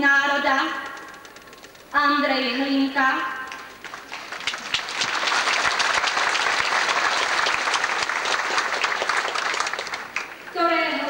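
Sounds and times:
large crowd applauding: 0:03.5 - 0:10.5.

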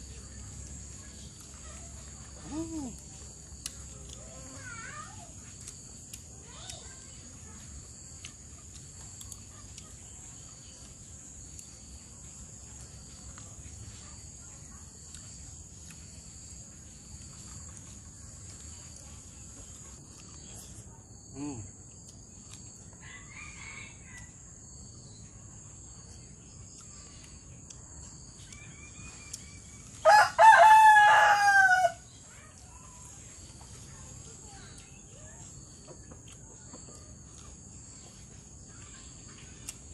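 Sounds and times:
insects droning high-pitched: 0:00.0 - 0:39.9
rooster crowing: 0:23.0 - 0:24.4, 0:30.0 - 0:32.0.

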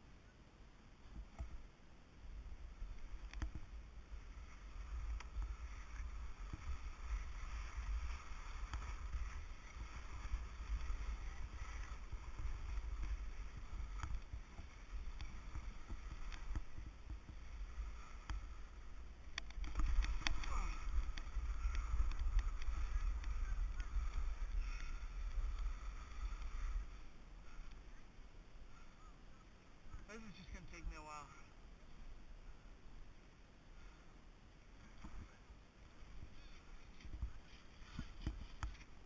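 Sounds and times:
wind rumbling on microphone: 0:01.0 - 0:31.1, 0:31.7 - 0:39.0
ski edges scraping snow: 0:02.7 - 0:27.9, 0:34.8 - 0:39.0.

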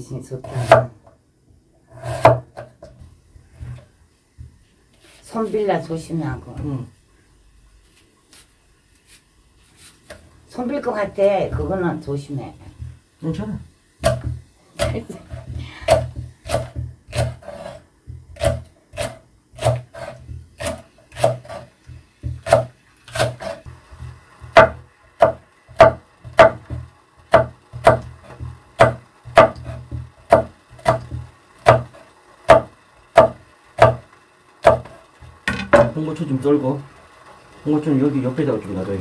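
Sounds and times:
knife chopping on wooden board: 0:00.5 - 0:00.9, 0:02.0 - 0:02.7, 0:14.0 - 0:34.0, 0:34.6 - 0:35.9.

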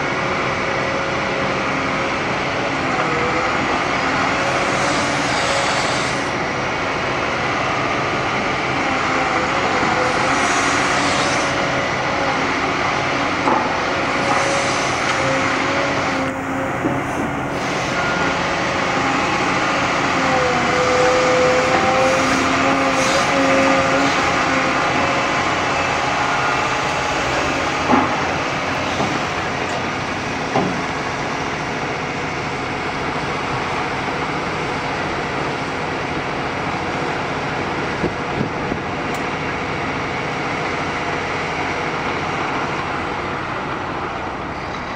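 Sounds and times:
excavator engine and hydraulics: 0:00.0 - 0:44.9
hydraulic whine shifting pitch: 0:14.0 - 0:36.0.

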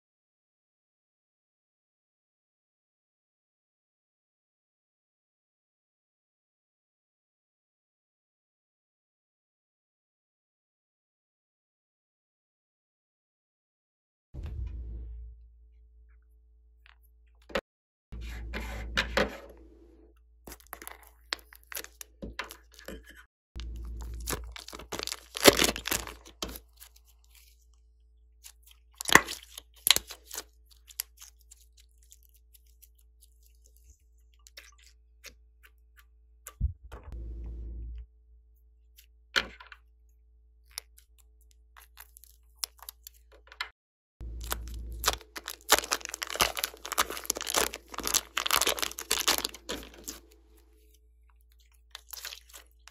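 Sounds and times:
plastic bag crinkling: 0:20.5 - 0:27.6, 0:28.5 - 0:33.9, 0:44.3 - 0:52.9
slime crackling and clicking: 0:23.8 - 0:26.9, 0:28.4 - 0:32.9, 0:40.6 - 0:43.2, 0:44.4 - 0:50.3, 0:51.9 - 0:52.9.

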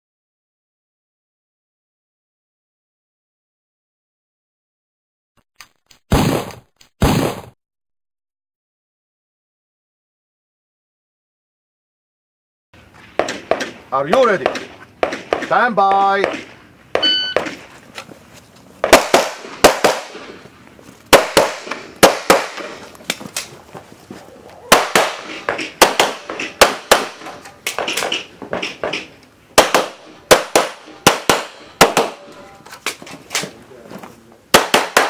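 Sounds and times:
pistol shots echoing: 0:13.2 - 0:16.6, 0:18.8 - 0:20.4, 0:21.1 - 0:22.9, 0:24.7 - 0:32.4, 0:34.5 - 0:35.0
shot timer beep: 0:17.0 - 0:17.4.

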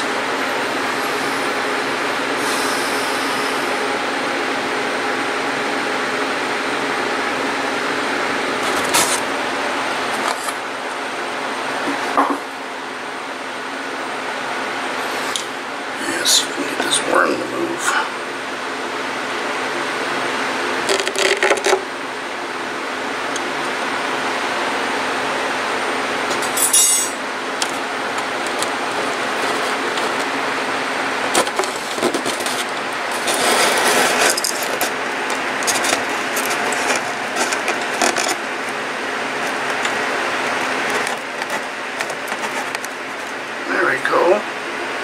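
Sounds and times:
background hum: 0:00.0 - 0:45.0.

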